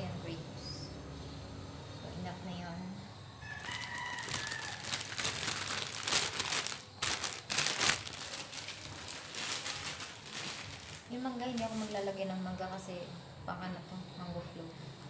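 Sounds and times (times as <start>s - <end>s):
plastic wrapping crinkling: 3.5s - 12.1s.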